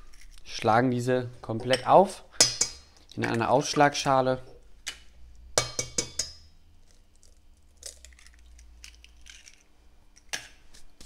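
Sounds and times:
eggshell tapping on metal bowl: 0:01.7 - 0:03.4, 0:05.6 - 0:06.5.

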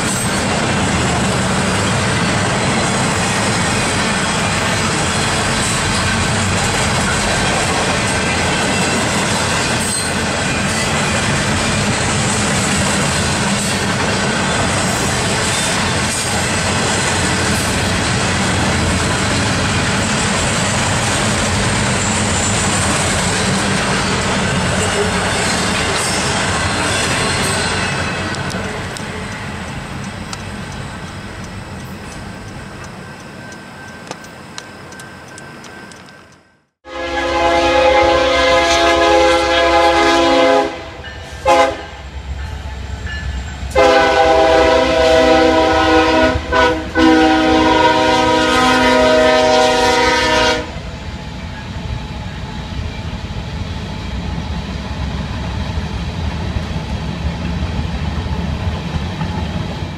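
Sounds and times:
passing train: 0:00.0 - 0:59.9
locomotive air horn blasts: 0:36.8 - 0:42.1, 0:43.7 - 0:50.8.

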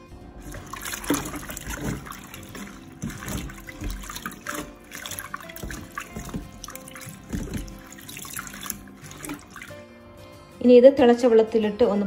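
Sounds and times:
leaves sloshing in bowl of water: 0:00.4 - 0:09.8.

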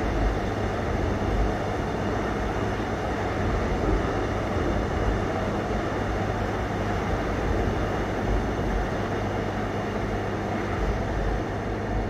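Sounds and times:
train wheels rumbling on rails: 0:00.0 - 0:12.0.

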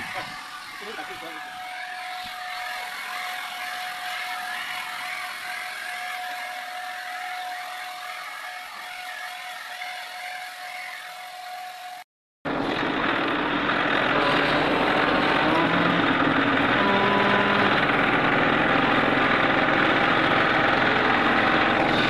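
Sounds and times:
electric paint spray gun whining: 0:00.0 - 0:22.0
tractor engine running: 0:12.5 - 0:22.0.

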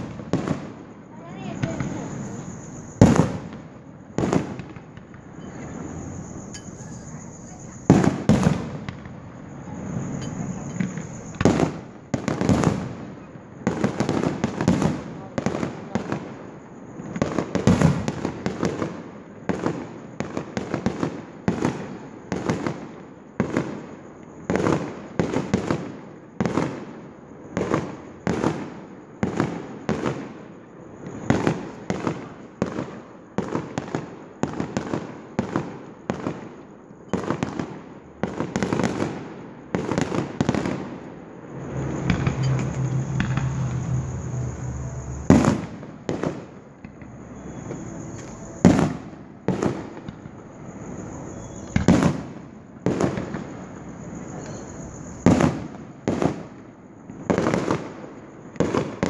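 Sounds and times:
aerial fireworks bursting: 0:00.0 - 0:16.2, 0:37.2 - 0:59.0.

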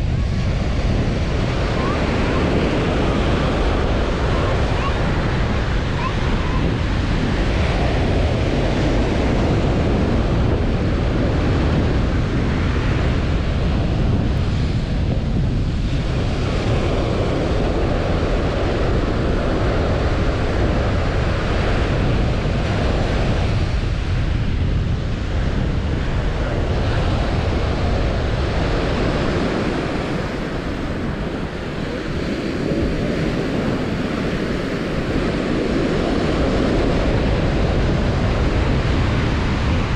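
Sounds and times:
surf breaking on beach: 0:00.0 - 0:39.9
wind buffeting microphone: 0:00.0 - 0:39.9.

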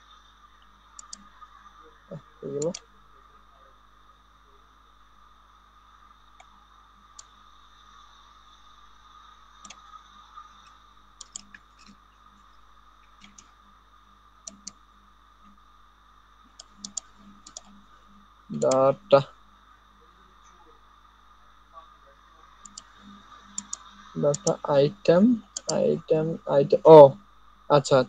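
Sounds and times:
faint electronic whine: 0:00.0 - 0:28.0
mouse clicks: 0:01.0 - 0:01.3, 0:02.6 - 0:02.8, 0:10.6 - 0:12.0, 0:13.0 - 0:13.5, 0:14.4 - 0:14.8, 0:16.5 - 0:17.8, 0:22.6 - 0:24.6, 0:25.5 - 0:25.8.

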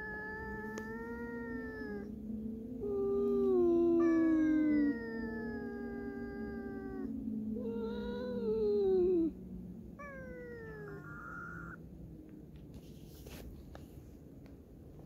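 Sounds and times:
cats meowing: 0:00.0 - 0:02.2, 0:02.8 - 0:09.4, 0:10.0 - 0:11.8.

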